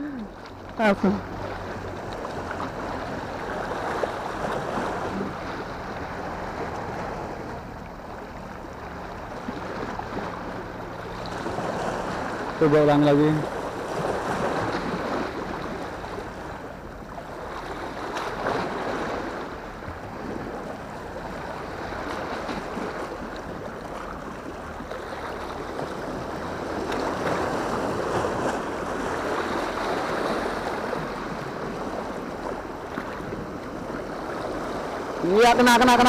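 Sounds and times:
waves washing against rocks: 0:09.4 - 0:36.0.

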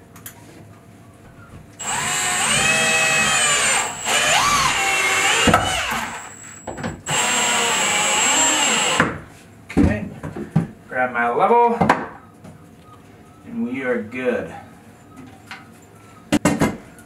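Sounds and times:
power drill driving screws into wood: 0:01.8 - 0:09.2.

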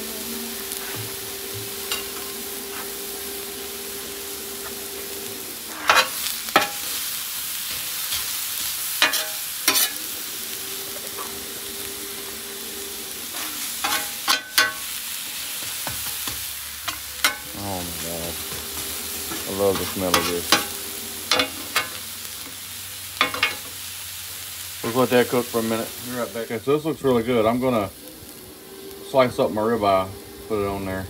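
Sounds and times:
vegetables sizzling on griddle: 0:00.0 - 0:31.0
metal spatula scraping griddle: 0:01.8 - 0:03.2, 0:04.5 - 0:22.5.

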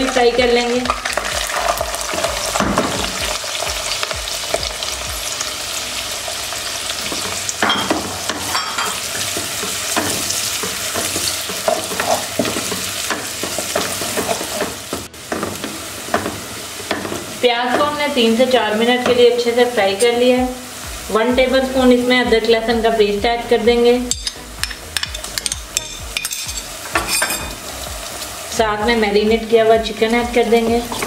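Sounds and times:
onions sizzling in hot oil: 0:00.0 - 0:31.0.

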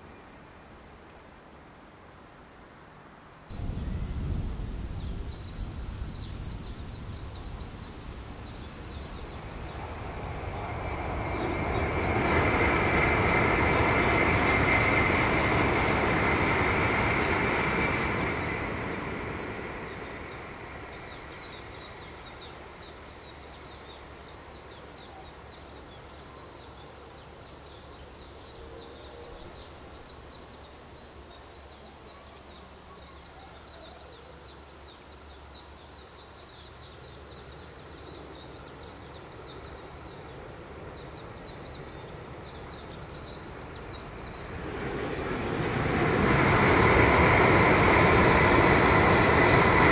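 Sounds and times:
high-speed train passing: 0:03.5 - 0:31.1, 0:37.4 - 0:49.9
birds chirping: 0:03.6 - 0:24.1, 0:37.4 - 0:49.9.

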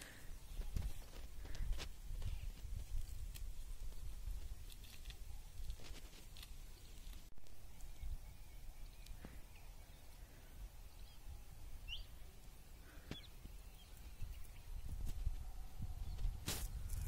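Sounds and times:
wind rumble on microphone: 0:00.5 - 0:04.8, 0:14.0 - 0:17.0
faint bird chirps: 0:06.6 - 0:16.9.

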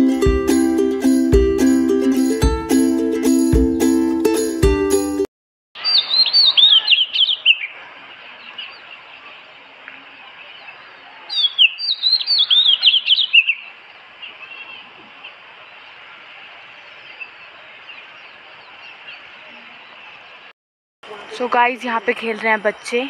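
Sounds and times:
songbird whistled notes: 0:05.8 - 0:07.7, 0:11.3 - 0:13.6.

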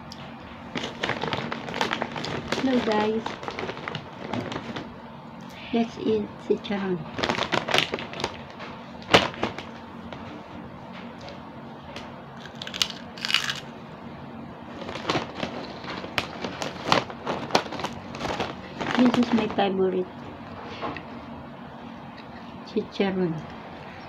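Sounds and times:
plastic snack bag crackling: 0:00.6 - 0:05.0, 0:07.1 - 0:09.7, 0:12.4 - 0:13.7, 0:14.7 - 0:19.8
crunchy snack being chewed: 0:12.4 - 0:13.7.

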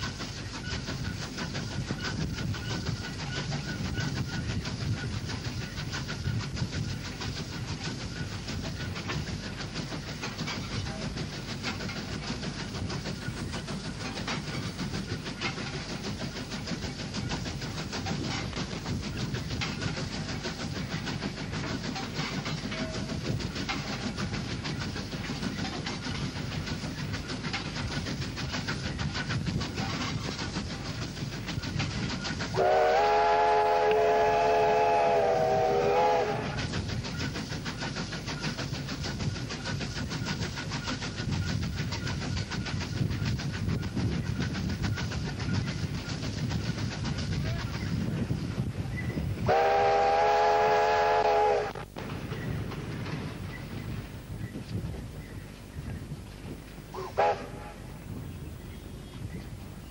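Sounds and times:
steam locomotive exhaust: 0:00.0 - 0:59.9
train wheel noise: 0:00.0 - 0:59.9
steam whistle blast: 0:32.5 - 0:36.6, 0:49.5 - 0:51.8, 0:57.0 - 0:57.8.

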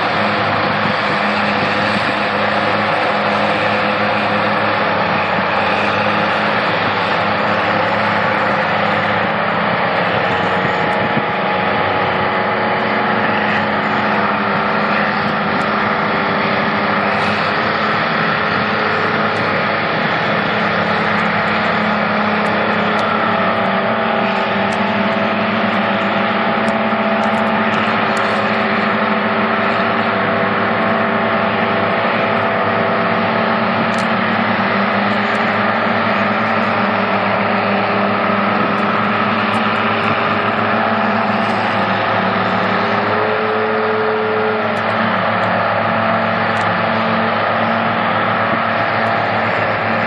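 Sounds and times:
loud engines droning: 0:00.0 - 0:50.0.

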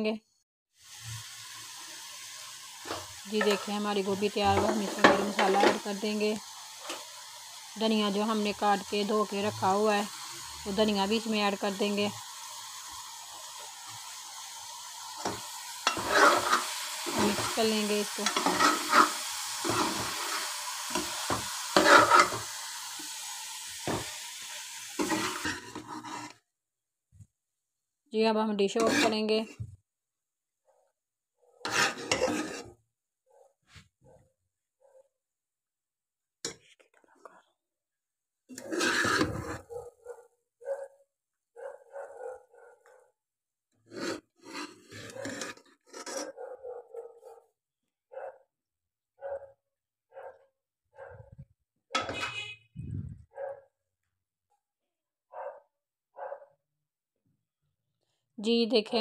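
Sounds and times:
food sizzling in pan: 0:00.8 - 0:26.4, 0:28.8 - 0:29.6, 0:31.7 - 0:32.7, 0:38.5 - 0:39.7
spoon scraping metal pot: 0:02.9 - 0:05.9, 0:15.2 - 0:22.5, 0:25.0 - 0:26.4, 0:28.8 - 0:29.6, 0:31.6 - 0:32.8, 0:38.5 - 0:39.7, 0:43.8 - 0:46.4
dog barking: 0:33.3 - 0:35.1, 0:39.6 - 0:43.2, 0:46.2 - 0:47.5, 0:48.1 - 0:48.5, 0:49.2 - 0:51.4, 0:53.3 - 0:53.7, 0:55.3 - 0:56.6.

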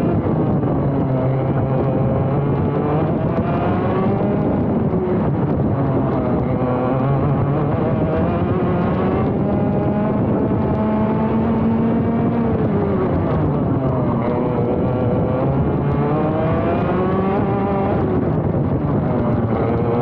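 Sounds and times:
kart engine accelerating: 0:00.0 - 0:20.0.

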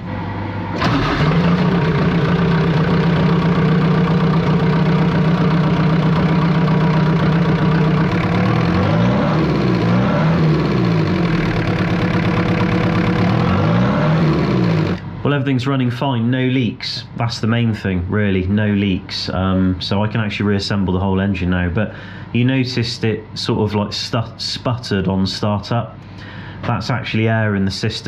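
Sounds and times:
diesel engine idling: 0:00.0 - 0:15.5
engine revving: 0:00.7 - 0:15.1.

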